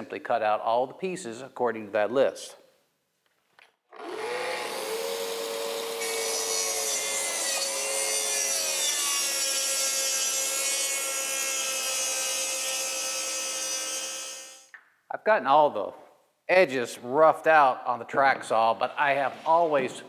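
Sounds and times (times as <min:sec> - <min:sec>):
track saw cutting plywood: 0:04.0 - 0:14.6.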